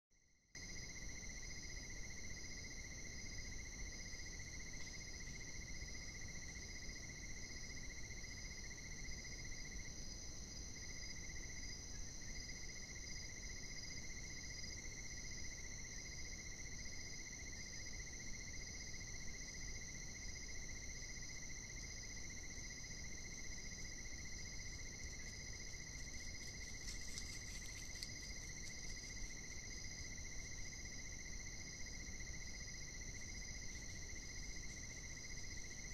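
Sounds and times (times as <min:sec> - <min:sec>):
insects trilling: 0:21.3 - 0:35.9
faint crackles: 0:25.1 - 0:29.6.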